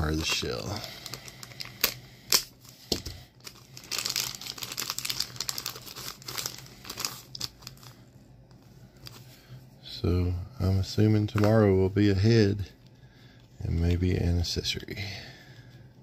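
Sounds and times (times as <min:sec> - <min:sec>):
plastic wrapper crinkling and tearing: 0:00.1 - 0:02.5, 0:03.4 - 0:08.0.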